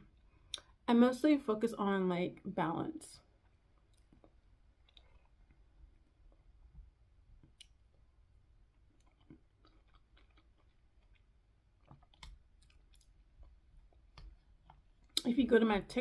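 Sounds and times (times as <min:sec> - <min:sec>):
soft chewing: 0:03.2 - 0:15.3.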